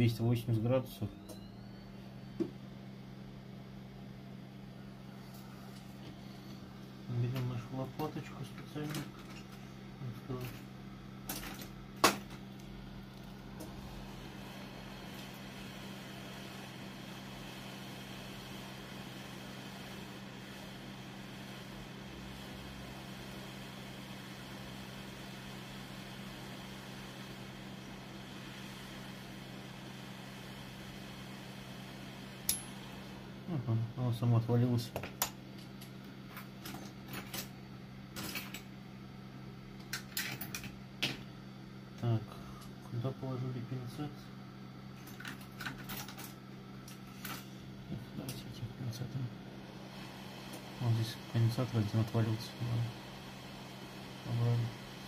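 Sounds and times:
low electrical hum: 0.0s - 55.0s
hot air gun hissing: 49.6s - 55.0s.

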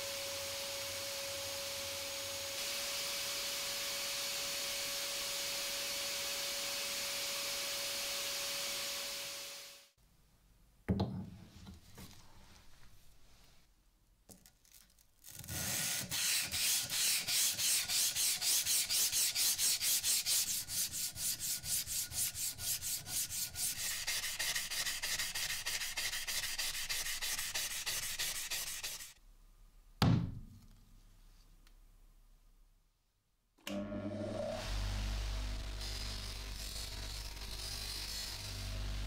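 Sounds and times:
sandpaper rubbing on steel: 15.6s - 29.2s.

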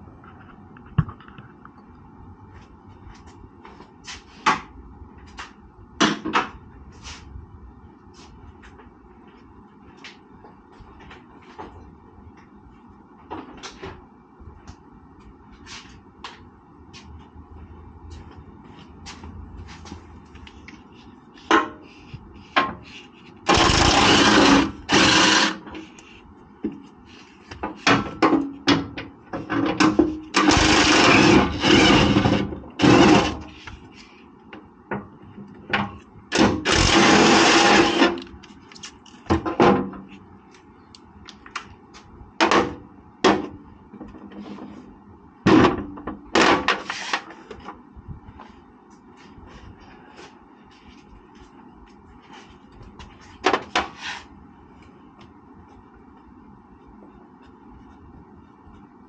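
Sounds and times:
impact wrench running: 23.5s - 25.8s, 30.3s - 33.5s, 36.3s - 38.2s.

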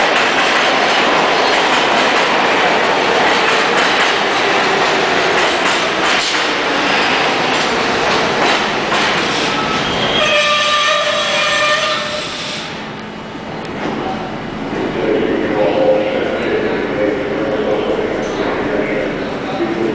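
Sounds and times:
train wheels rumbling on rails: 0.0s - 19.9s
train brakes squealing: 9.2s - 12.8s.

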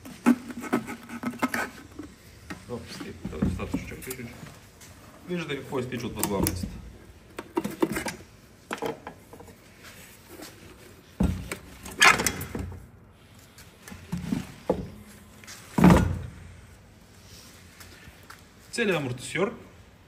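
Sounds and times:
shock absorber thunks and rustles: 0.0s - 5.0s, 6.2s - 12.9s, 13.6s - 16.6s.

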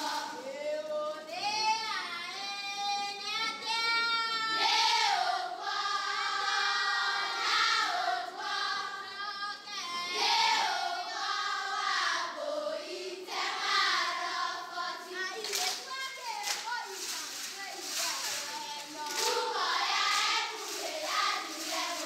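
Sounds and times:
high voices singing together: 0.0s - 22.0s.

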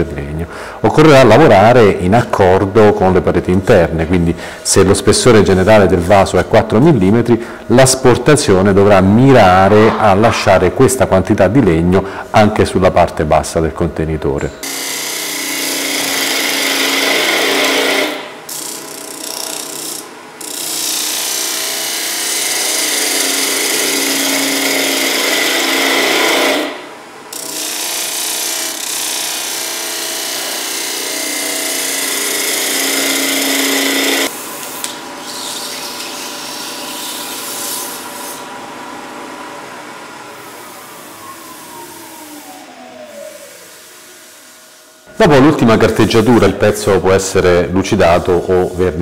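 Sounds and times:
tool cutting wood hiss: 14.6s - 38.5s
wood lathe hum: 14.6s - 46.6s.

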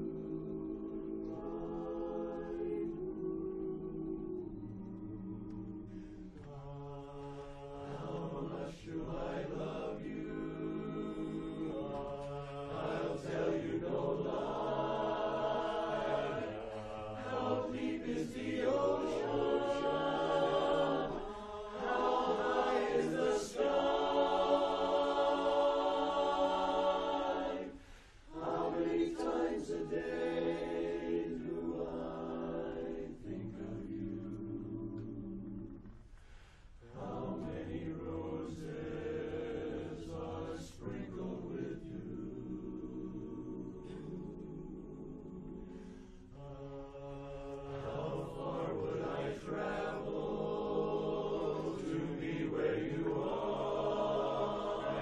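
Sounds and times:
choir singing in harmony: 0.0s - 55.0s.

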